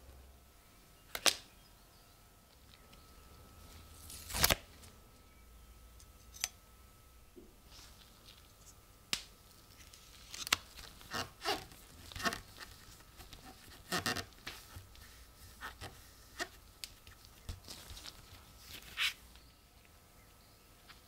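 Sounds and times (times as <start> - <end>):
card and plastic film crinkling: 3.7 - 4.9, 9.5 - 19.5.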